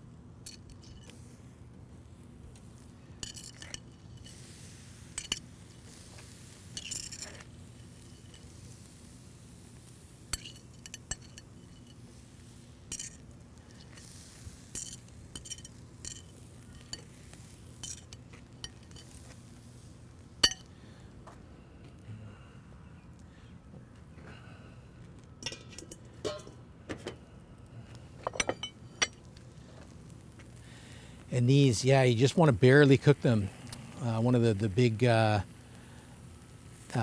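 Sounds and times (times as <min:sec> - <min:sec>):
metal tongs clinking on grill: 0:00.4 - 0:01.3, 0:02.7 - 0:08.7, 0:09.8 - 0:19.3, 0:20.4 - 0:20.7, 0:25.4 - 0:27.2, 0:28.2 - 0:29.3
tongs clacking: 0:03.2 - 0:04.4, 0:05.1 - 0:05.4, 0:10.3 - 0:12.0, 0:12.9 - 0:14.1, 0:14.7 - 0:19.2, 0:20.4 - 0:20.7, 0:25.4 - 0:26.6.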